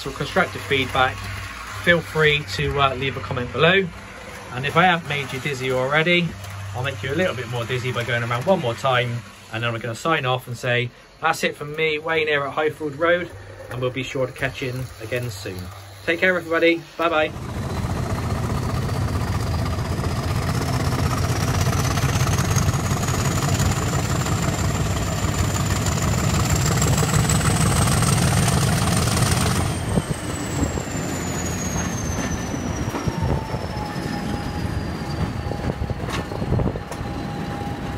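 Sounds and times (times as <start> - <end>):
wheels rumbling on track: 0.0 - 37.9
model train motor whine: 12.6 - 37.9.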